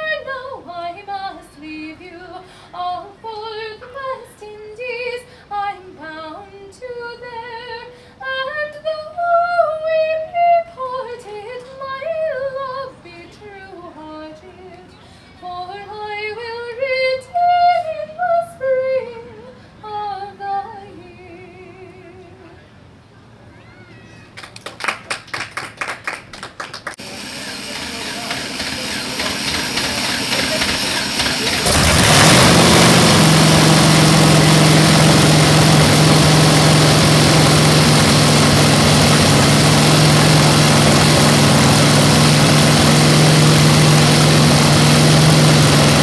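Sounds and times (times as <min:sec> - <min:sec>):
woman singing unaccompanied: 0:00.0 - 0:22.6.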